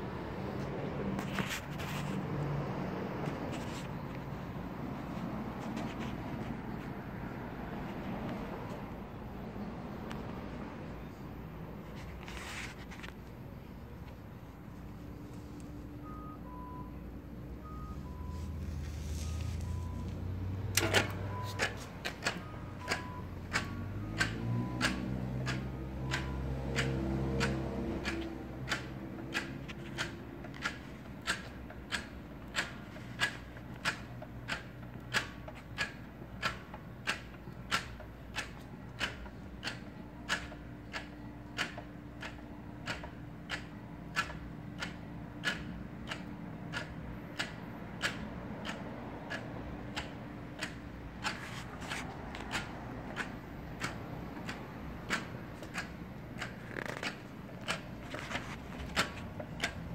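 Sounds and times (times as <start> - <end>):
pedal mechanism clicking: 20.7 - 59.9.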